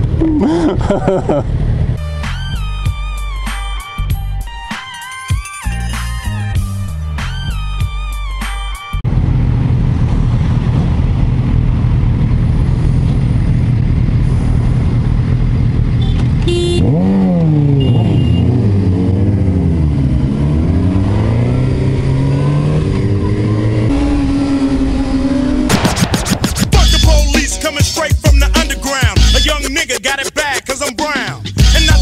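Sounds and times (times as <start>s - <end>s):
motorcycle engines idling and revving: 0.0s - 4.3s, 9.0s - 29.9s.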